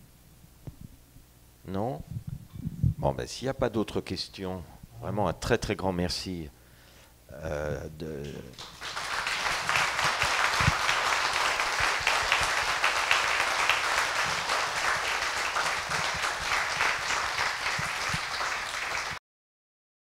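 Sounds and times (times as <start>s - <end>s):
audience applauding: 8.5s - 19.2s.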